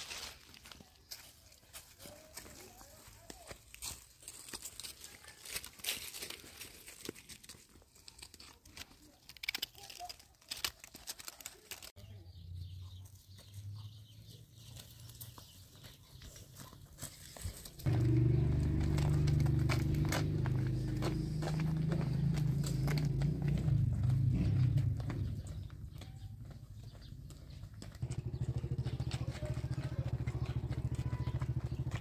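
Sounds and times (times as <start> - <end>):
footsteps on dry leaves: 0.0 - 11.9, 14.5 - 25.4
twigs snapping: 4.5 - 11.9.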